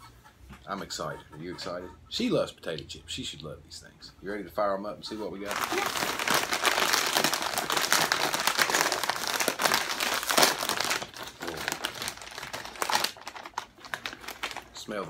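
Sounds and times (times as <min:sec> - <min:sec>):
chip bag crinkling: 0:05.4 - 0:15.0.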